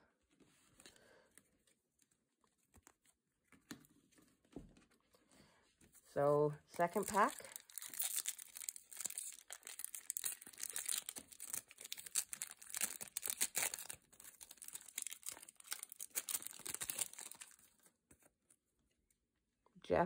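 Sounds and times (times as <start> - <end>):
foil wrapper crinkling: 6.8 - 17.9.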